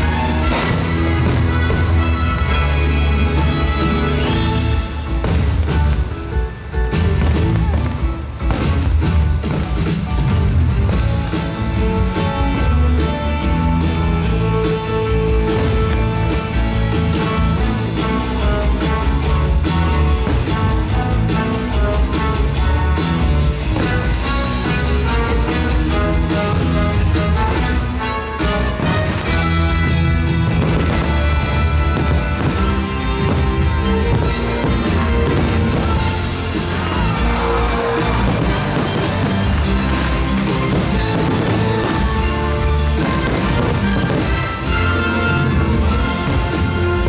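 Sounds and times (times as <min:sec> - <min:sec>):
firework bangs: 0:00.0 - 0:10.2, 0:27.3 - 0:47.0
loud soundtrack music: 0:00.0 - 0:47.0.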